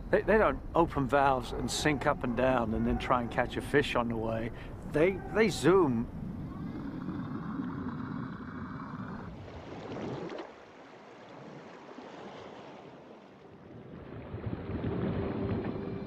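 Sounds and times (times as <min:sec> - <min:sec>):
churning water and bubbles: 0:05.0 - 0:16.0
water rushing and splashing: 0:05.3 - 0:16.0.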